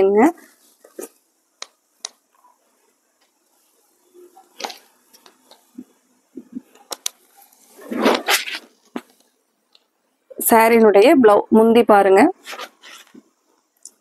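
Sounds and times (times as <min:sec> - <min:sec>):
cloth rustling and flapping: 0:07.3 - 0:09.2, 0:12.4 - 0:13.3.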